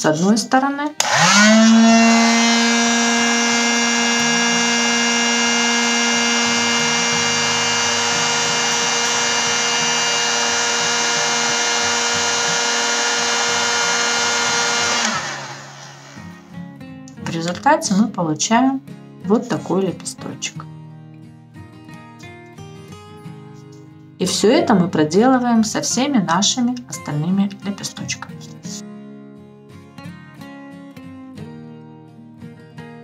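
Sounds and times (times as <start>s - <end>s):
heat gun motor whine: 1.0s - 16.5s.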